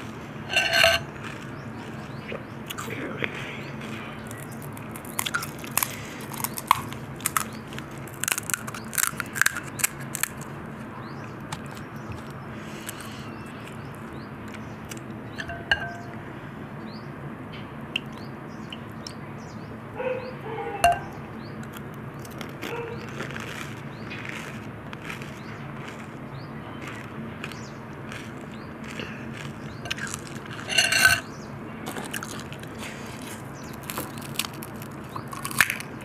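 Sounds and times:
crisp shells crunching: 0.0 - 3.0, 3.9 - 15.0, 21.6 - 36.0
spoon clinking against glass bowl: 15.4 - 16.2, 30.7 - 31.2.

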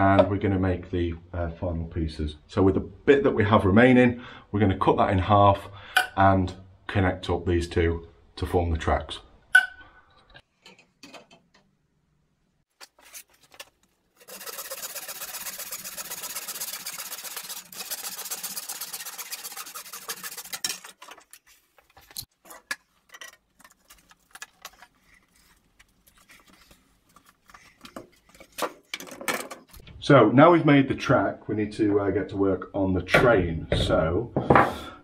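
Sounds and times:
hand saw cutting plastic pipe: 14.2 - 21.4.

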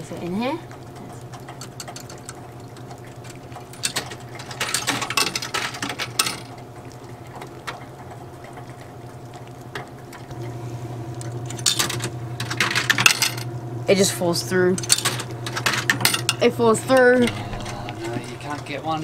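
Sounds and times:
low mechanical hum: 0.0 - 19.0
coins rattling through coin mechanism: 3.7 - 6.5, 11.5 - 13.5, 14.8 - 16.4.

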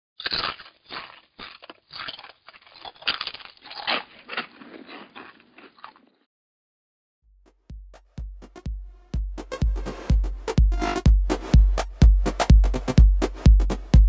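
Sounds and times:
tortilla chips crunching: 0.2 - 6.3.

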